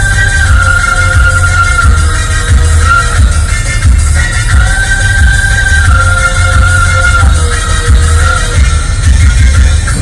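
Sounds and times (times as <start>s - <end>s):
electronic music with bass beat: 0.0s - 10.0s.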